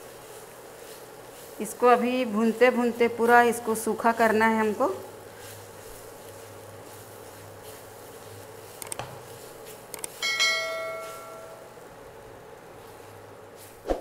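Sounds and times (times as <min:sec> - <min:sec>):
faint steady hum: 0:00.0 - 0:13.8
quick clicks: 0:08.8 - 0:09.1, 0:09.9 - 0:10.2
bell-like chime: 0:10.2 - 0:11.7.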